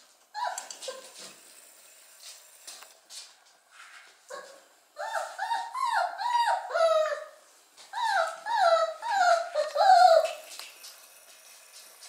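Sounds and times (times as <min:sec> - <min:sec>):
dog whining: 0:00.4 - 0:01.2, 0:04.3 - 0:10.4.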